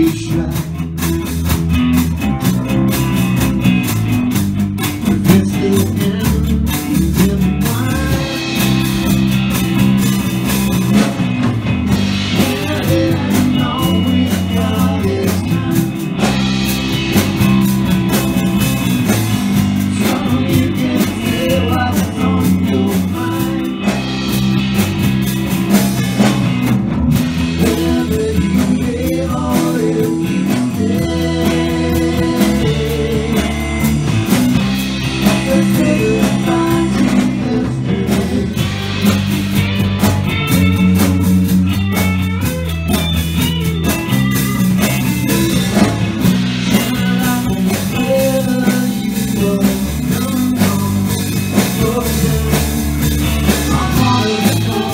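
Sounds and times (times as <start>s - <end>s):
drum kit groove: 0.0s - 54.9s
electric guitars: 0.0s - 54.9s
woman singing: 53.5s - 54.9s.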